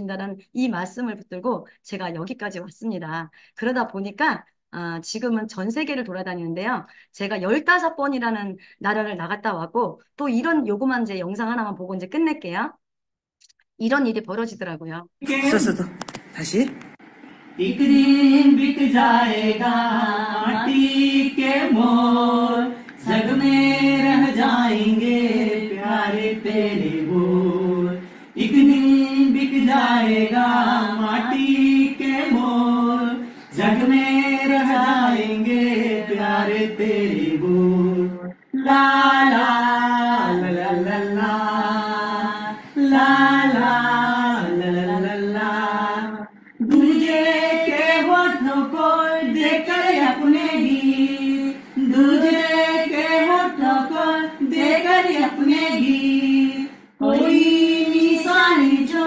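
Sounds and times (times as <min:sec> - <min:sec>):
man and woman singing unaccompanied: 0:17.6 - 0:59.0.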